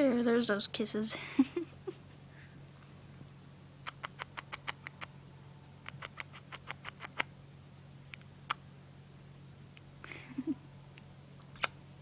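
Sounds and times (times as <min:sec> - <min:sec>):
bird beak clicking: 0:03.8 - 0:05.1, 0:05.8 - 0:07.3.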